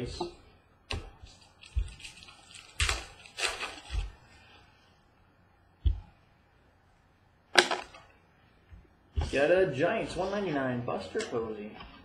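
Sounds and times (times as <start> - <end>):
cards rustling: 1.2 - 4.3.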